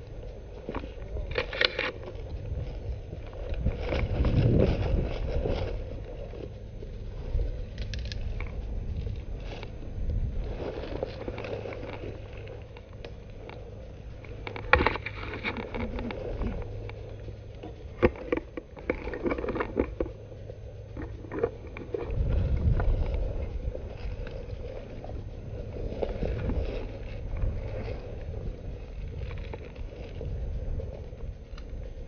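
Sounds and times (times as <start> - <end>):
low rumble: 0.0 - 32.0
rustling of dry leaves: 0.0 - 32.0.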